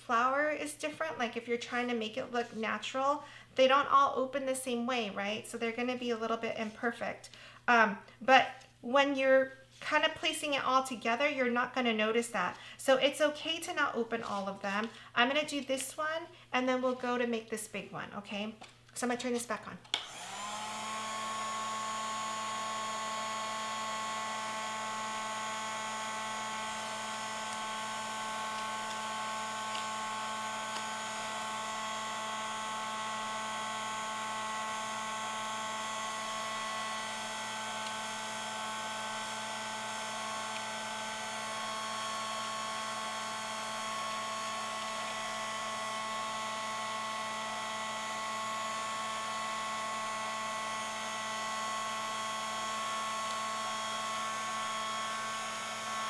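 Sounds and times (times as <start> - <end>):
heat gun fan blowing: 19.9 - 56.0.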